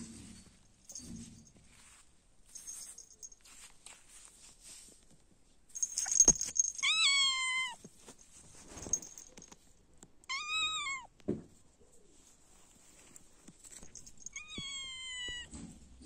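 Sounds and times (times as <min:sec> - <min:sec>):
rustling: 0:00.0 - 0:09.8, 0:11.5 - 0:15.7
kitten meowing: 0:10.3 - 0:11.1, 0:14.3 - 0:15.5.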